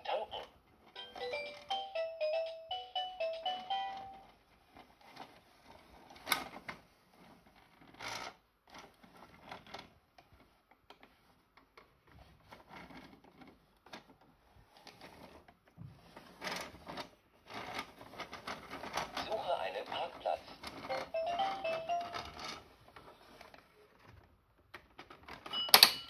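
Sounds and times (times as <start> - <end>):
plastic toy clicks and knocks: 24.7 - 26.0.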